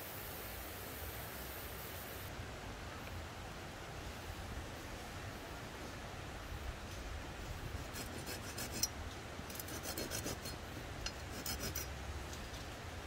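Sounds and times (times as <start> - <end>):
hand saw rasping: 7.8 - 8.9, 9.5 - 11.9.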